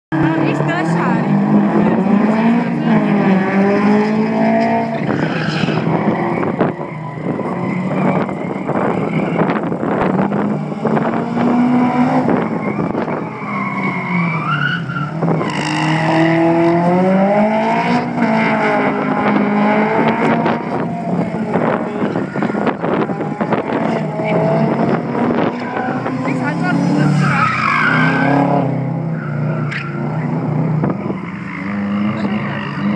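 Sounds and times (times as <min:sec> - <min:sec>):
race car engines revving: 0:00.1 - 0:32.9
tyres squealing: 0:25.8 - 0:30.1.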